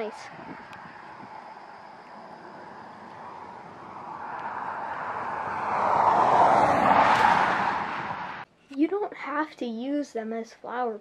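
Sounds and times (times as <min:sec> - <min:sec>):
vehicle driving past: 0:00.3 - 0:08.4.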